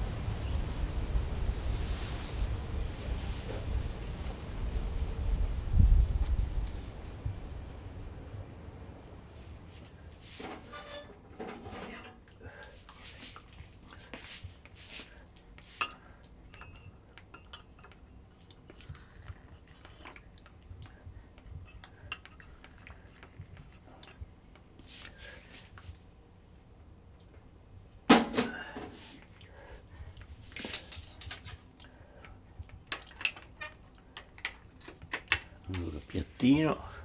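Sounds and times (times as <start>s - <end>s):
cups and cutlery clinking: 10.4s - 12.2s, 15.6s - 18.1s.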